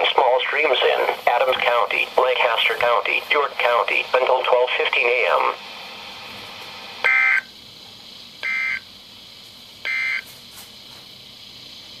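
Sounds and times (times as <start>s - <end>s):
buzzy data tone bursts: 8.4s - 8.9s.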